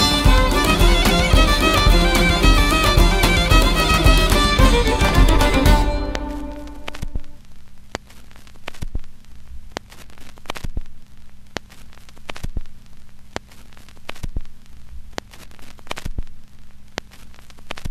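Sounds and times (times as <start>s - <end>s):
faint hiss: 0.0s - 17.9s
static crackle clicks: 6.0s - 17.9s.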